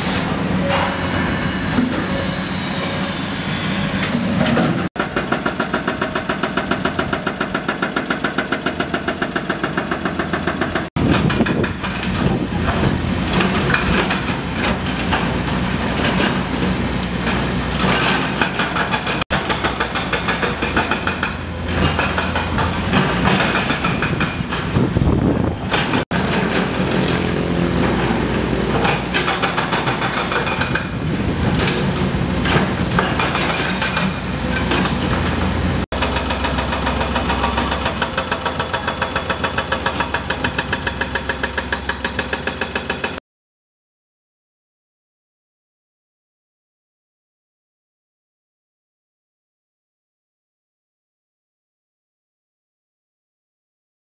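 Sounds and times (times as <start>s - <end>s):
excavator diesel engines running: 0.0s - 43.2s.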